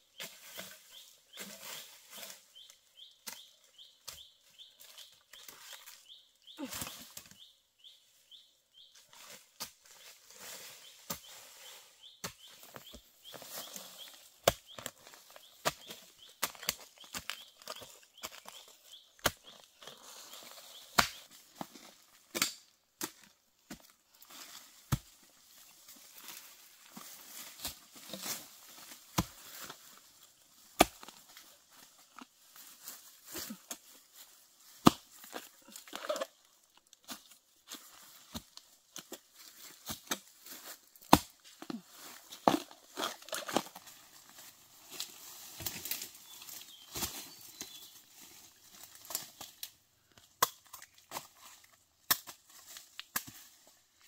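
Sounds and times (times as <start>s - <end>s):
leaves and undergrowth rustling: 0.0s - 54.0s
digging tool striking soil: 41.0s - 41.4s.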